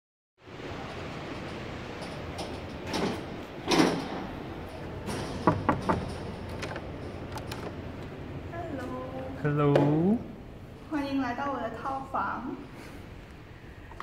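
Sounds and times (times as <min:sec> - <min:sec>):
steady background hiss: 0:00.4 - 0:14.0
door handling rustles: 0:01.4 - 0:08.2.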